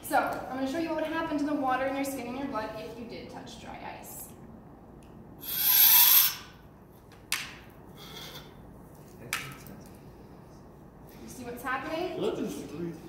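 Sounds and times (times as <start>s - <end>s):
spoon hissing on dry ice: 5.4s - 6.5s.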